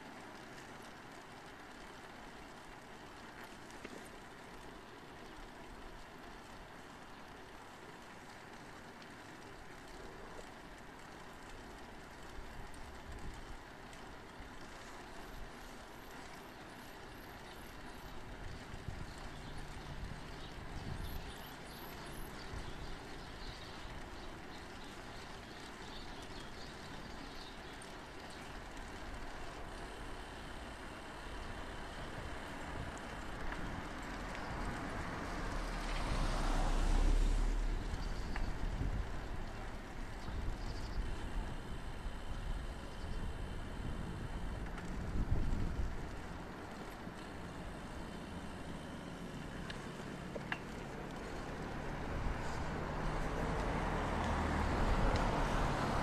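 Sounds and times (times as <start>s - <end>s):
car approaching on street: 0.0s - 56.0s
car driving past: 34.9s - 38.2s.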